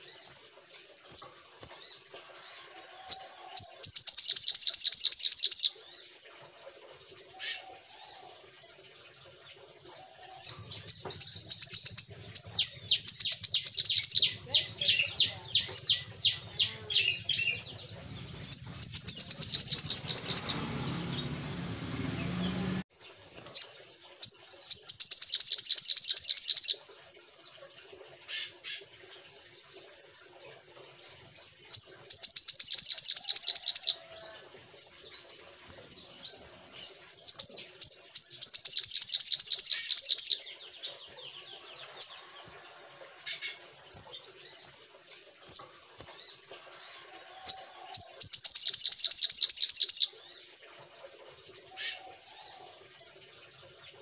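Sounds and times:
bird chips and twitters: 0:10.7 - 0:21.4, 0:37.3 - 0:40.4
bird high trilling: 0:10.8 - 0:21.5.

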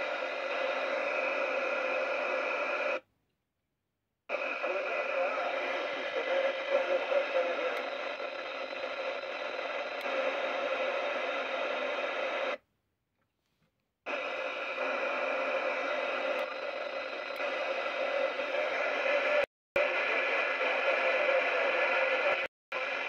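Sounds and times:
radio static hiss: 0:00.0 - 0:03.0, 0:04.3 - 0:12.6, 0:14.1 - 0:23.0.

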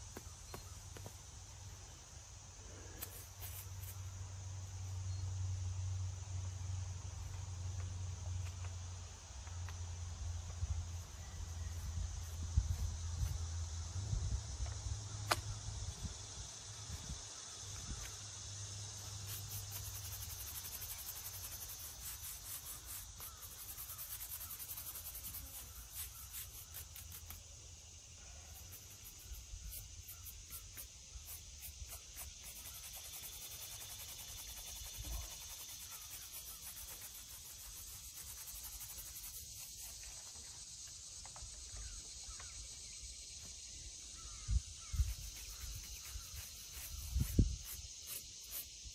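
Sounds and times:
insects buzzing: 0:00.0 - 0:48.9
hand tool scraping stone: 0:02.9 - 0:04.0, 0:19.3 - 0:27.4, 0:28.6 - 0:40.4, 0:45.0 - 0:48.7.

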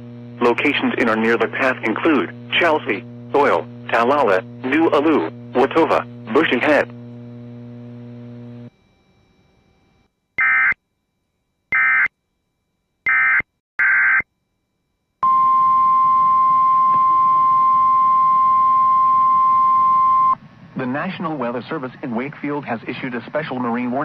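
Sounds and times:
digital data tone bursts: 0:10.4 - 0:10.8, 0:11.7 - 0:12.1.

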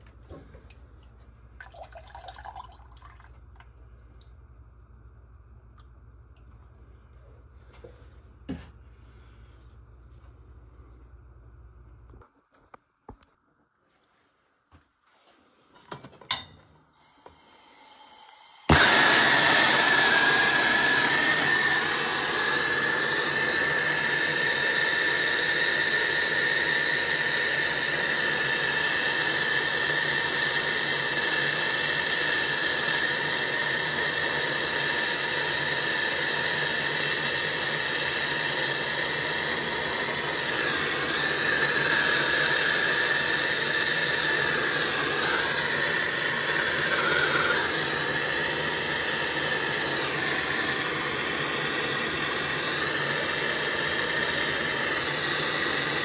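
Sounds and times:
gas torch flame hissing: 0:16.8 - 0:56.0.

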